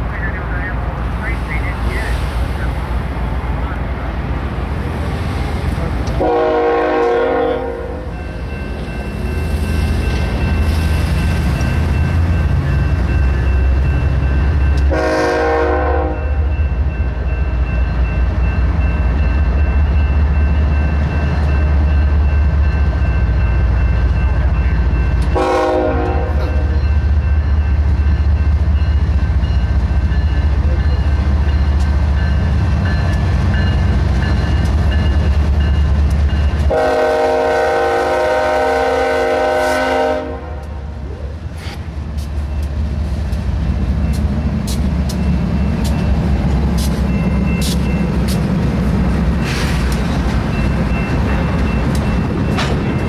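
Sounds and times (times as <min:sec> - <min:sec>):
locomotives rumbling past: 0:00.0 - 0:53.0
multi-note air horn: 0:06.2 - 0:08.0, 0:14.9 - 0:16.2, 0:25.4 - 0:26.4, 0:36.7 - 0:40.6.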